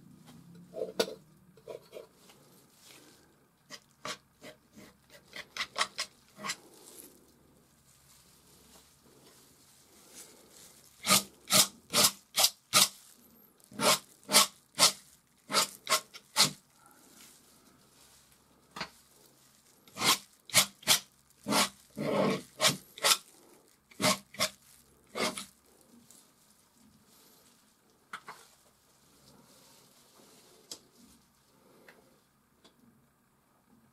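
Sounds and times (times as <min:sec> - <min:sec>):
palette knife scraping paint: 0:13.8 - 0:16.6, 0:19.9 - 0:23.2, 0:25.1 - 0:25.5.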